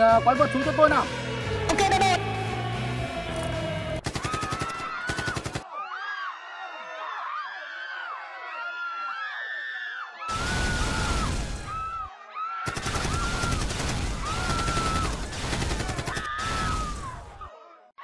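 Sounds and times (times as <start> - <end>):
people screaming: 1.7 - 18.0
machine-gun fire: 4.0 - 5.6, 12.7 - 17.0.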